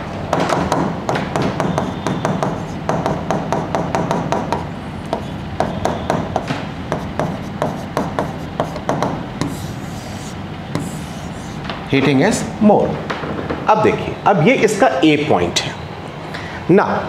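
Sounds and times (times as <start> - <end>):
low room hum: 0.0 - 17.0
marker pen writing on whiteboard: 0.7 - 11.8.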